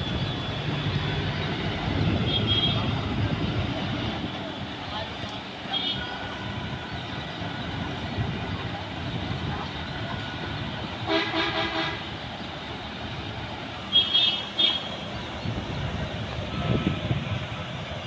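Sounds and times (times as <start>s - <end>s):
traffic rumble: 0.0s - 18.0s
vehicle horn blaring: 11.1s - 12.0s.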